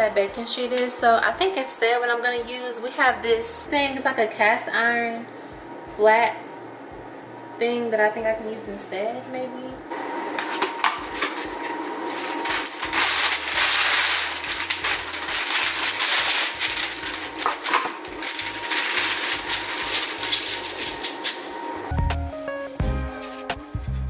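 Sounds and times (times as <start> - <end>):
paper rustling and crinkling: 10.4 - 22.6.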